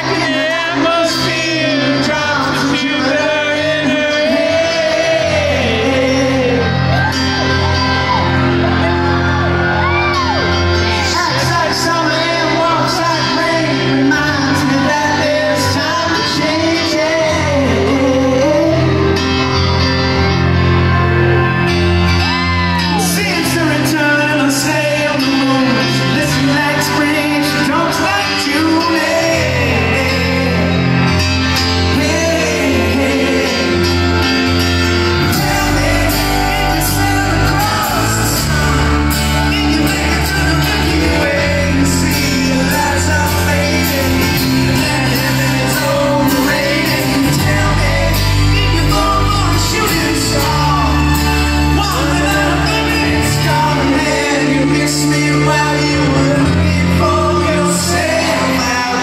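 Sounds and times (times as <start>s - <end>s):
lead vocals: 0.0s - 59.0s
live rock band: 0.0s - 59.0s
piano: 0.0s - 59.0s
deep bass: 28.6s - 59.0s.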